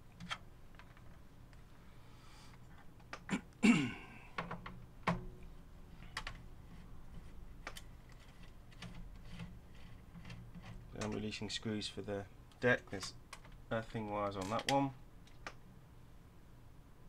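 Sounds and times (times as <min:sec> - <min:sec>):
small parts clattering: 0:12.9 - 0:15.4.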